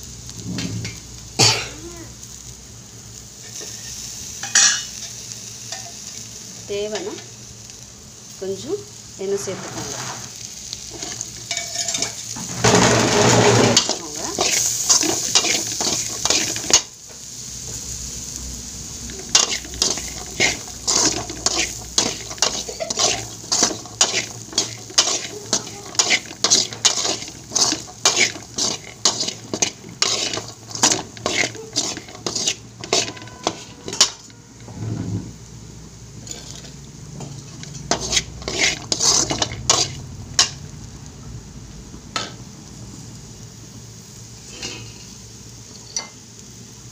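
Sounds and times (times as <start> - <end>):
frying sizzle: 0.0 - 46.9
metal spatula scraping pan: 9.4 - 10.3, 10.9 - 16.9, 19.2 - 35.3, 36.2 - 40.6.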